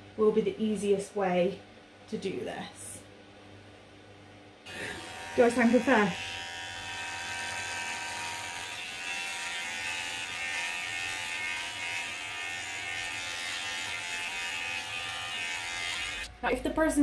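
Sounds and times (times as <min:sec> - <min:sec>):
electric hair clippers cutting hair: 0:04.7 - 0:16.3.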